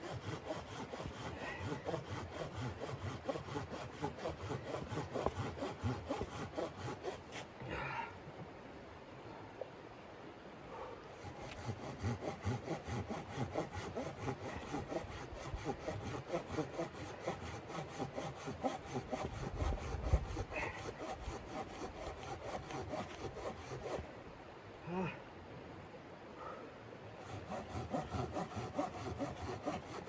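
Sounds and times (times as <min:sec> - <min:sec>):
hand saw cutting log: 0:00.0 - 0:07.5, 0:11.2 - 0:24.1, 0:27.2 - 0:30.0.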